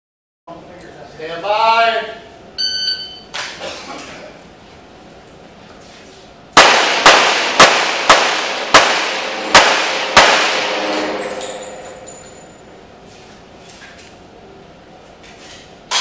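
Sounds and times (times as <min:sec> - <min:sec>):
handgun shots echoing: 0:06.6 - 0:11.9.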